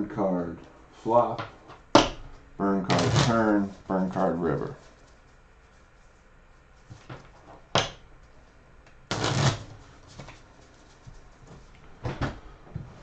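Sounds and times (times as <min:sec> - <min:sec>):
cards rustling: 0:02.9 - 0:05.4
cards snapping on wooden table: 0:07.8 - 0:08.0.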